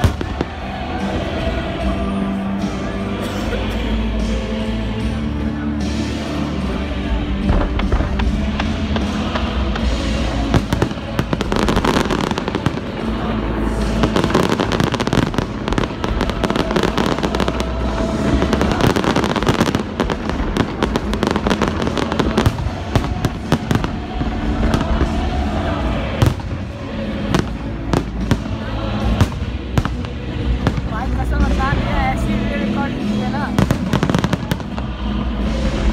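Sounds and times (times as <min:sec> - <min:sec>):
fireworks bursting: 0:00.0 - 0:02.6, 0:07.2 - 0:32.0, 0:33.0 - 0:35.9
crackling fireworks stars: 0:00.0 - 0:02.8, 0:05.9 - 0:32.2
music playing: 0:00.0 - 0:35.9.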